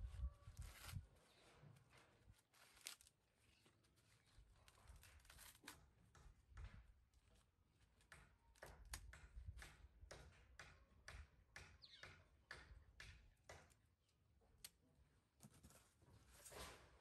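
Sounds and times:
maize husks rustling and tearing: 0.5s - 5.8s.

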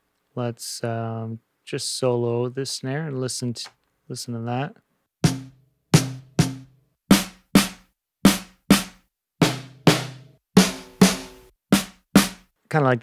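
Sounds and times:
snare drum hits: 5.3s - 12.5s.

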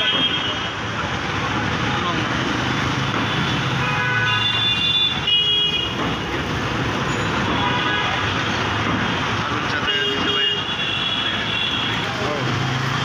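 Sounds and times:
vehicle horns tooting: 0.0s - 0.8s, 3.2s - 6.2s, 7.1s - 8.4s, 9.6s - 12.4s
street traffic hum: 0.0s - 13.0s.

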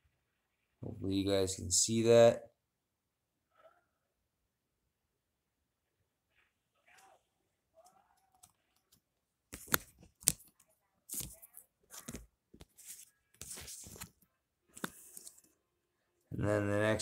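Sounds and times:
papery scraping of card packaging: 11.1s - 14.2s.

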